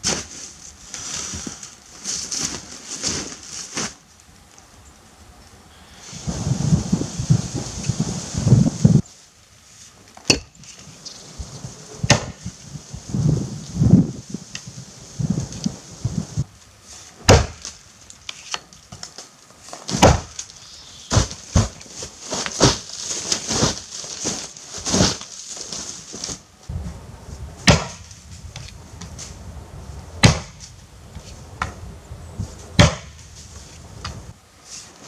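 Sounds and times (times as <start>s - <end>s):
axe chopping tree trunk: 10.2s - 10.5s, 12.1s - 12.4s, 17.2s - 17.7s, 19.9s - 20.4s, 27.6s - 28.0s, 30.2s - 30.6s, 32.8s - 33.2s.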